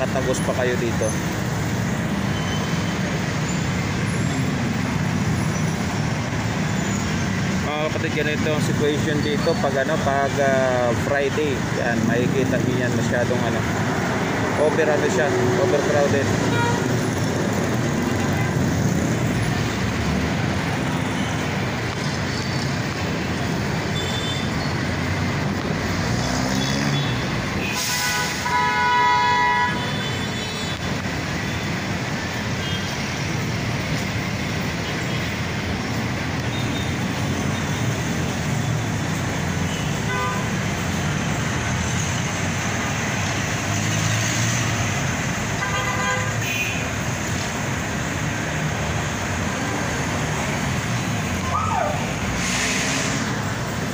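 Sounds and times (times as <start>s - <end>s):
dense city traffic: 0.0s - 53.9s
vehicle horn: 16.5s - 16.9s, 27.6s - 30.7s, 39.7s - 40.5s, 45.6s - 46.8s.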